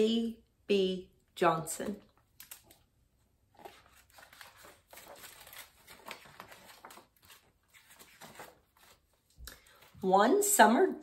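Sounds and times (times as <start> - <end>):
book pages rustling and crinkling: 2.5 - 10.0.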